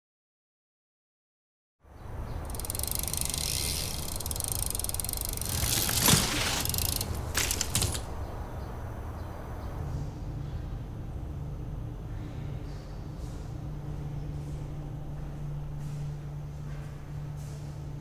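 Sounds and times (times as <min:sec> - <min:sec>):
freewheel hub ticking: 0:02.3 - 0:08.1.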